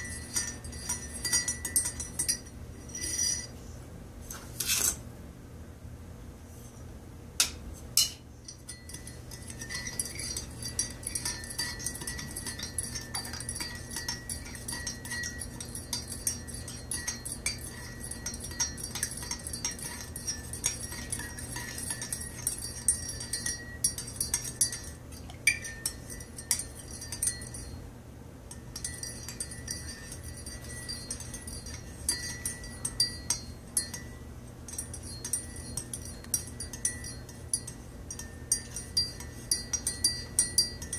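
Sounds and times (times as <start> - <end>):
metal spoon clinking in mug: 0.0 - 3.5, 8.0 - 27.8, 28.5 - 40.9.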